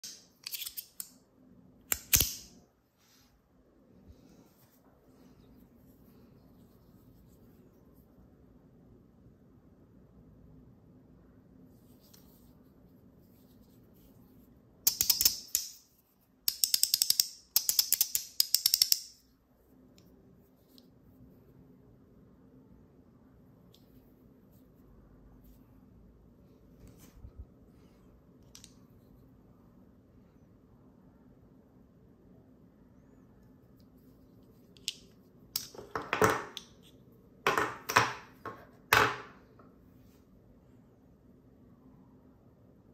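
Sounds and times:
metal fidget slider clicking: 0.0 - 1.1.

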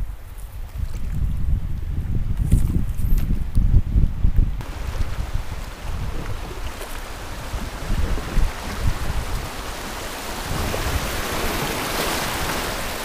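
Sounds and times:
wind buffeting microphone: 0.0 - 13.0
river water rushing: 4.6 - 13.0.

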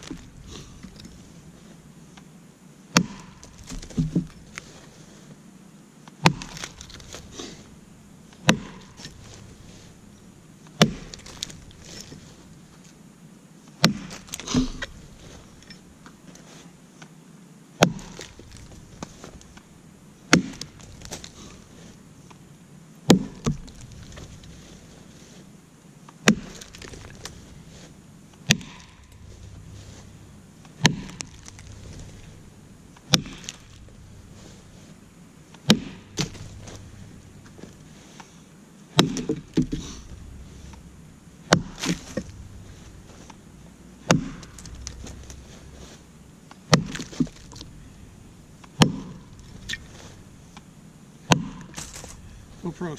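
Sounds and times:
axe chopping wood: 2.9 - 4.4, 6.2 - 7.6, 8.4 - 9.4, 10.8 - 12.2, 13.8 - 15.0, 17.8 - 19.4, 20.3 - 21.7, 23.0 - 24.5, 26.2 - 27.5, 28.4 - 34.4, 35.6 - 37.7, 38.9 - 40.8, 41.4 - 43.4, 44.0 - 45.6, 46.7 - 47.8, 48.6 - 50.2, 51.2 - 52.3.

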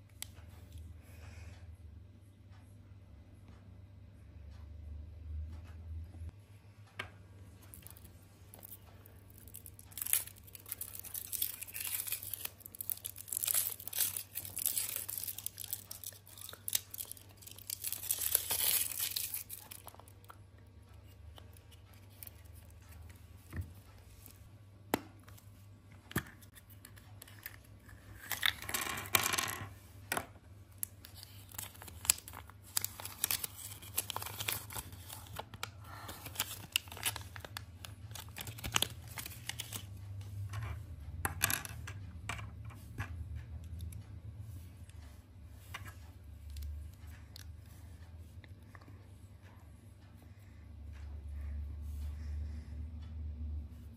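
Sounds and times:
foil wrapper crinkling and tearing: 8.6 - 20.0, 30.8 - 39.9.

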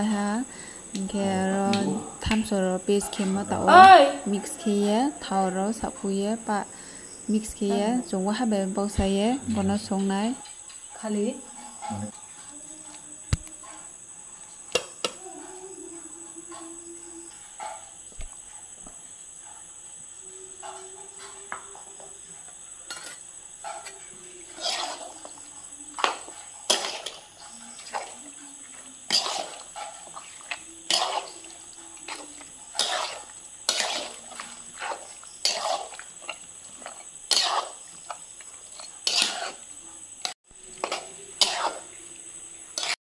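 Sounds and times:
metal spatula scraping wok: 22.8 - 42.0, 42.7 - 43.0.

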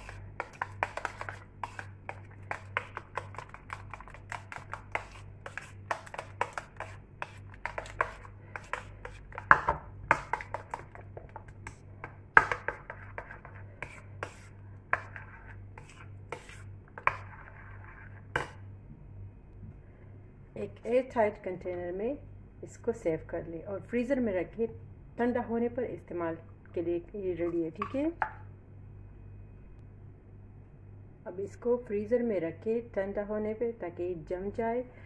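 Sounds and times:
spoon scraping a bowl: 0.0 - 18.6.

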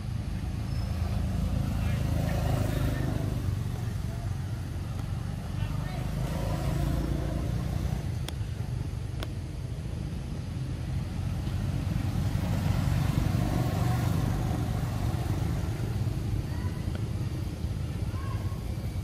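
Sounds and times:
motor scooters passing: 0.0 - 19.0.

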